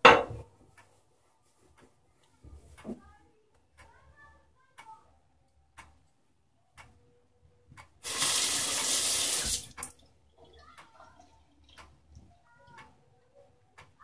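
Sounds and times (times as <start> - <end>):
wall clock ticking: 0.6 - 1.0, 2.6 - 8.0, 9.8 - 14.0
sink tap running: 8.0 - 10.0.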